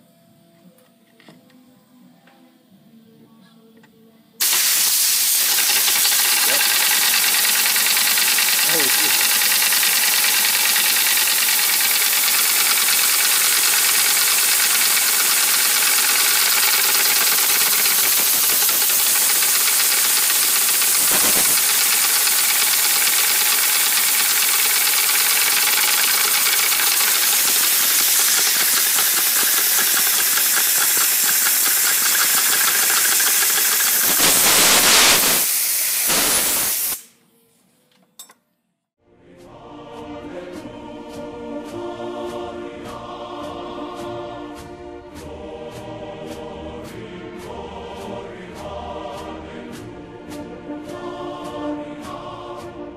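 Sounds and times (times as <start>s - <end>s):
steam engine piston pulses: 4.4s - 37.1s
air hissing through pipes: 4.4s - 37.2s.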